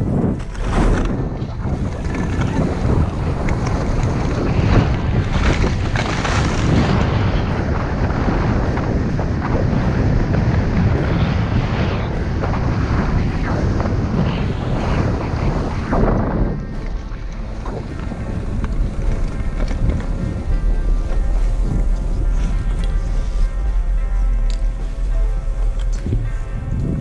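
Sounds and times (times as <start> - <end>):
skis rushing over snow: 0.0 - 23.9
wind buffeting microphone: 0.0 - 27.0.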